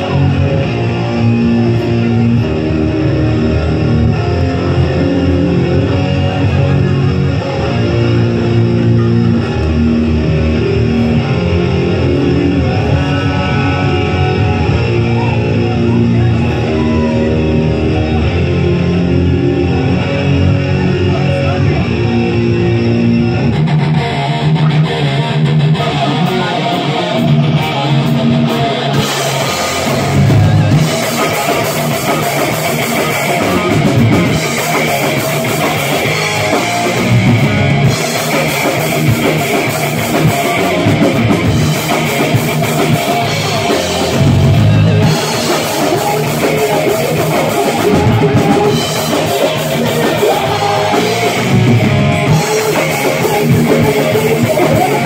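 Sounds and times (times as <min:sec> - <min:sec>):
electric guitars: 0:00.0 - 0:55.0
heavy metal band playing: 0:00.0 - 0:55.0
drum kit with cymbals: 0:26.0 - 0:55.0.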